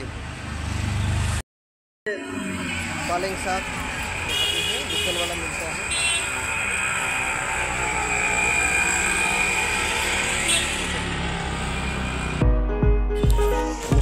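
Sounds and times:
passing vehicles: 0.0 - 1.4, 2.2 - 12.4
music with heavy bass beat: 12.4 - 14.0.

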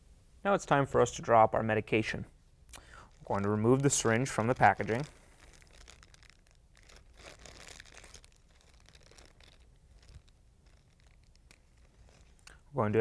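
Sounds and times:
plastic wrapper crinkling: 2.8 - 12.6.

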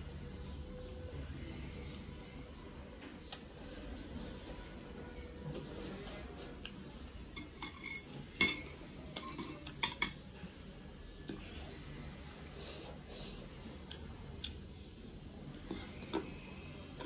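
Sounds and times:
chopsticks clinking against a plate: 7.3 - 10.3.

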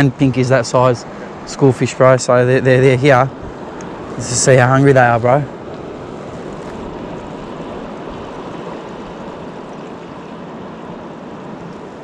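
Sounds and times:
small waves lapping on rocks: 3.1 - 12.0.

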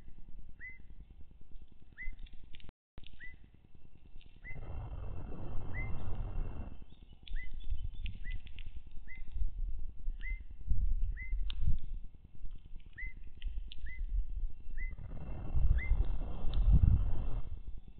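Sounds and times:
low rumbling noise: 0.0 - 17.9
bird chirping: 0.6 - 1.1, 1.9 - 2.4, 3.0 - 3.5, 4.2 - 9.4, 10.1 - 11.5, 12.8 - 17.4.

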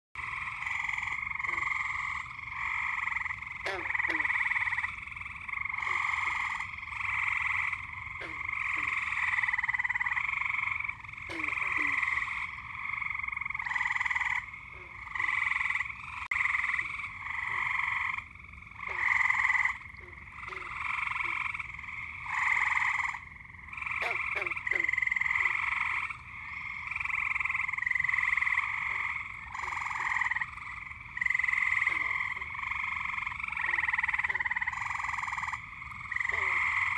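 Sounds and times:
frogs trilling: 0.2 - 36.9
low falling frog calls: 0.2 - 36.9.

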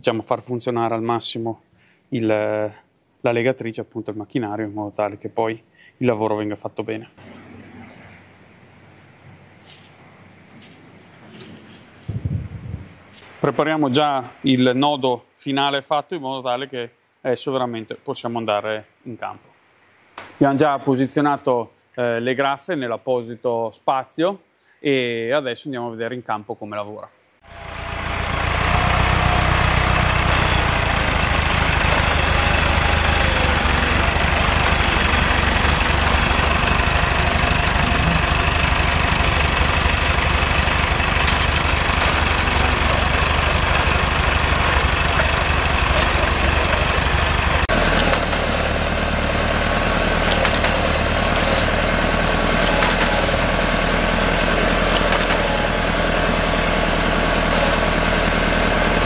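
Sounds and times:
tractor diesel engine running: 27.4 - 59.0.

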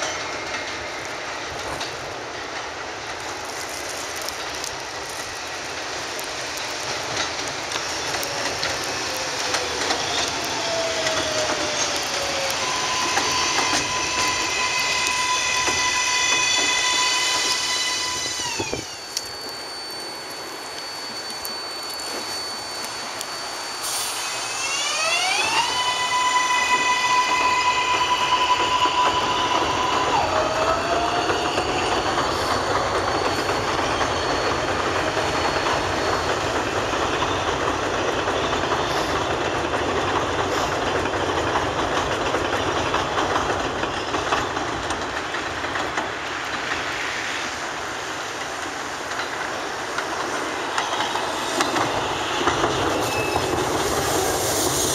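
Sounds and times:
subway train motors whining: 0.0 - 54.9
wheels clattering over rails: 28.6 - 46.9.

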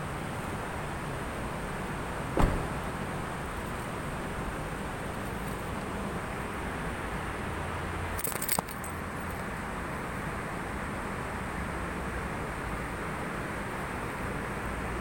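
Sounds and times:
steady background noise: 0.0 - 15.0
metallic jingle and clink: 8.1 - 9.4.

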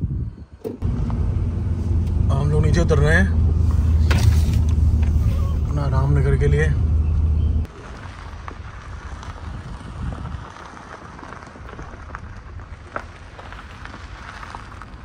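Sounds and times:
car engine and tyres rumbling: 0.0 - 15.0
grit crackling under wheels: 0.6 - 15.0.

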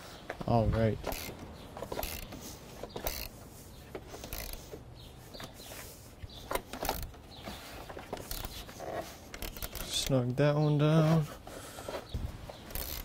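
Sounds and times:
ratchet wrench clicking: 1.1 - 2.4, 3.0 - 3.4, 4.2 - 4.7, 6.7 - 7.2, 12.7 - 13.0.

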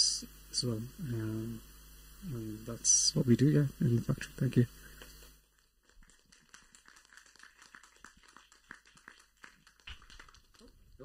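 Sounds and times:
scattered hand-clapping: 5.6 - 10.7.

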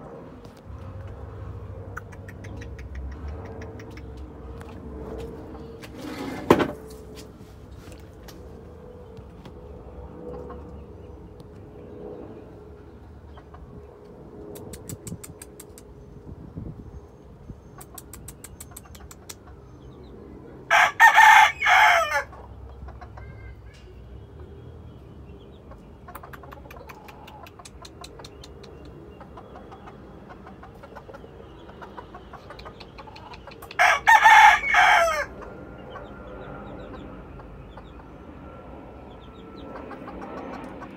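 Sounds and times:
quick clucks: 1.9 - 4.3, 14.5 - 15.9, 17.8 - 19.6, 26.0 - 33.8
rooster crowing: 20.7 - 22.3, 33.8 - 35.4.

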